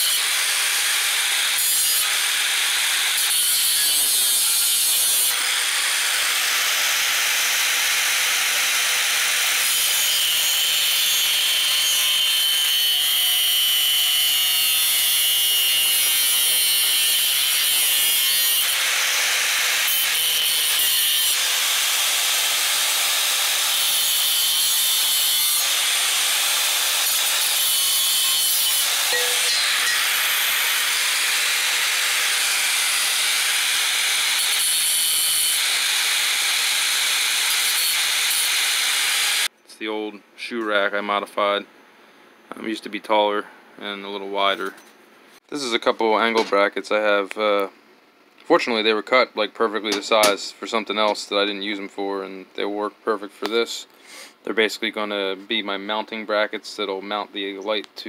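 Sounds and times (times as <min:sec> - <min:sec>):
angle grinder cutting metal: 0:00.0 - 0:39.5.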